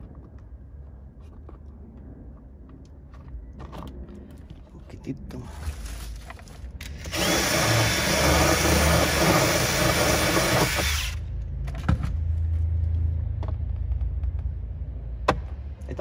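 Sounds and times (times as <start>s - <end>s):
cordless drill drilling sheet metal: 6.9s - 11.2s.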